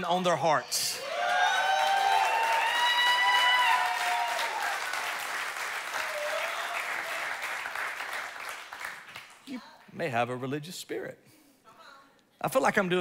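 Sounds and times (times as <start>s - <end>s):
crowd applauding: 0.8s - 9.5s
shouts and whoops: 0.9s - 5.0s, 5.9s - 7.2s.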